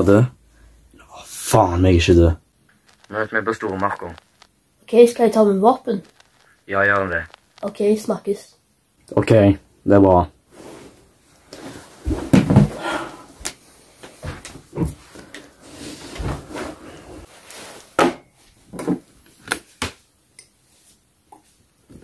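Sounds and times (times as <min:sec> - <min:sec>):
sharp clicks: 0:02.7 - 0:04.6, 0:06.0 - 0:07.7
objects clattering on wooden table: 0:18.0 - 0:19.1.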